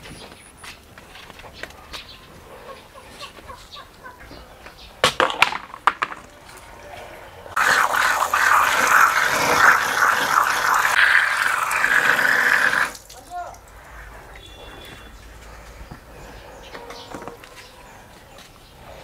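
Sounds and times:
water running from a tap: 0:07.6 - 0:13.9
leaf rinsed under water: 0:07.6 - 0:14.1.

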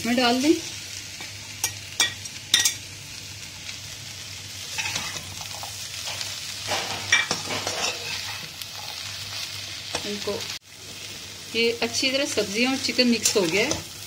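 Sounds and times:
light sizzle: 0:00.0 - 0:14.0
metal spatula scraping a wok: 0:04.6 - 0:10.1.

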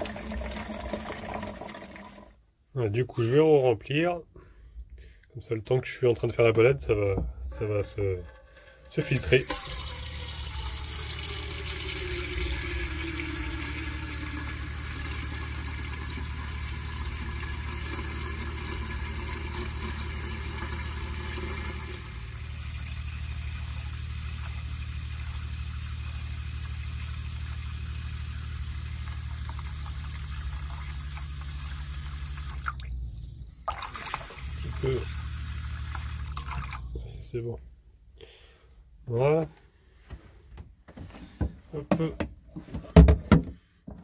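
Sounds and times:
water pouring into metal tank: 0:00.0 - 0:02.4, 0:07.7 - 0:37.1
low steady hum: 0:02.6 - 0:39.1.

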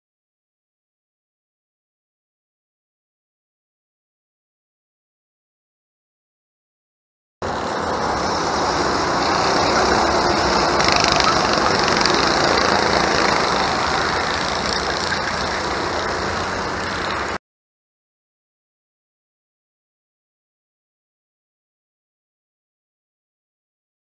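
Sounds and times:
go-kart engines running: 0:07.4 - 0:17.4.

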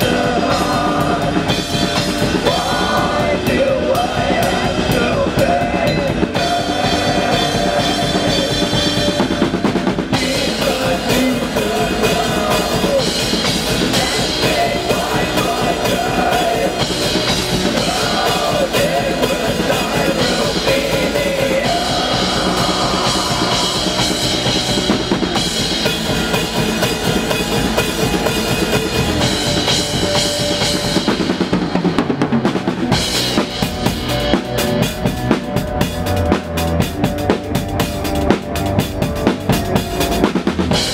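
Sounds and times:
fast drum kit beat: 0:00.0 - 0:40.9
metal band playing: 0:00.0 - 0:40.9.

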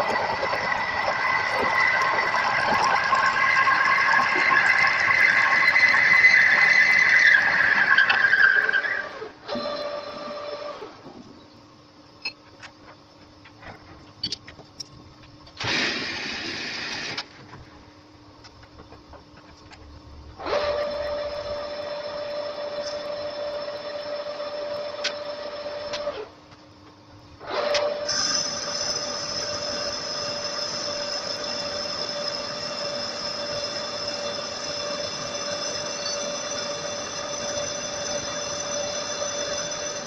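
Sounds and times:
lathe cutting metal: 0:00.0 - 0:09.3, 0:20.4 - 0:26.1, 0:27.6 - 0:40.0
lathe running with faint hum: 0:00.0 - 0:40.0
ringing tone and high whine: 0:11.2 - 0:15.2, 0:28.0 - 0:40.0.

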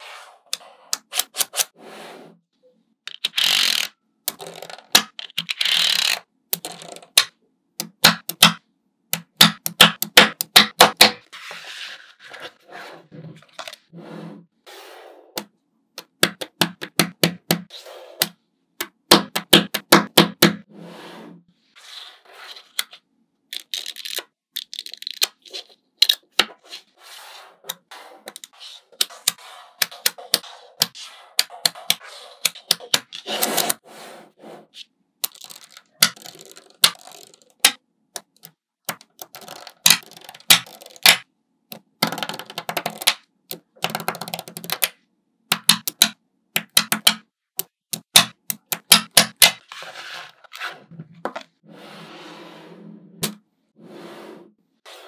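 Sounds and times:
magnet balls clicking and snapping: 0:35.2 - 0:41.2, 0:45.5 - 0:49.6.

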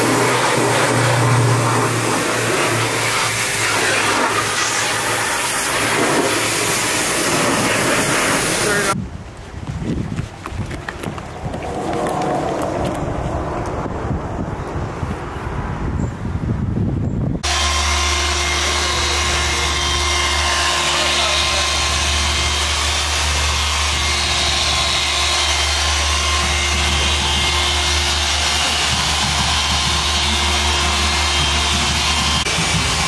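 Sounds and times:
polisher machine hum: 0:00.0 - 0:09.0, 0:17.4 - 0:33.0.

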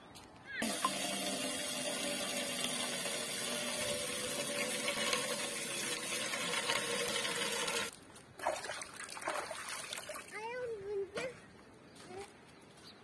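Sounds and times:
tap water pouring into metal pot: 0:00.6 - 0:07.9.

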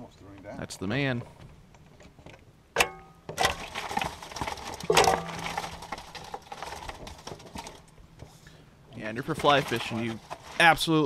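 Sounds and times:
sharp knocks and clatter: 0:01.9 - 0:08.3.

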